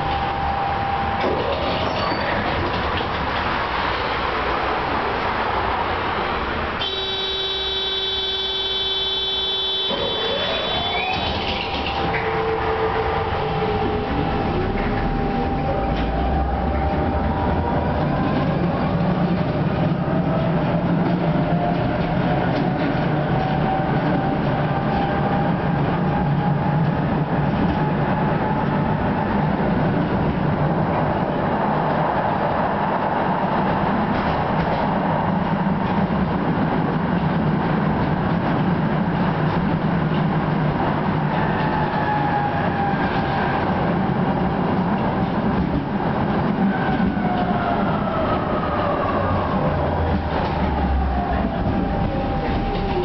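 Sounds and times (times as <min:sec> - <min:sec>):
tram running noise: 0:00.0 - 0:53.0
tram buzzer: 0:06.8 - 0:11.0.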